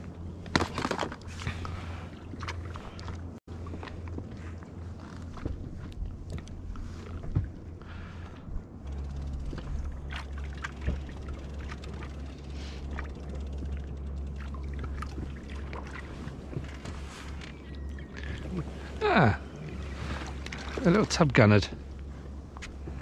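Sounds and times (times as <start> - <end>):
steady low rumble: 0.0 - 23.0
water slapping against boat hull: 9.5 - 17.3.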